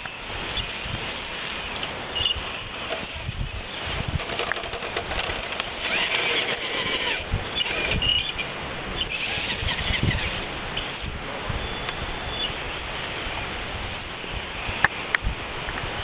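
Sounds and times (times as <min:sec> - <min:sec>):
electric motor and gears whirring: 0:00.0 - 0:11.1.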